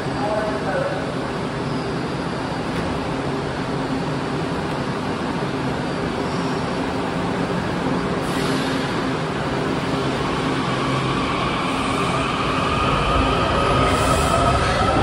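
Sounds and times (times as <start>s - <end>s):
subway train rumble: 0.0s - 15.0s.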